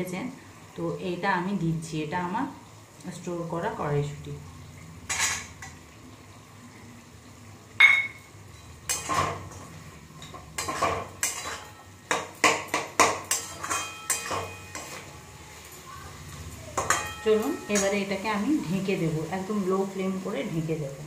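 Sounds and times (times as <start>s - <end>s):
metal clang: 7.8s - 8.3s, 10.6s - 15.0s
spatula scraping a pan: 8.6s - 15.3s.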